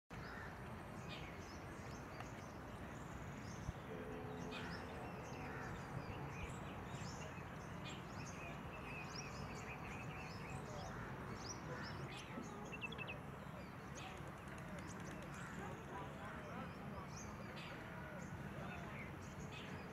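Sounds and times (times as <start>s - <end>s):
small birds chirping: 5.2s - 19.9s.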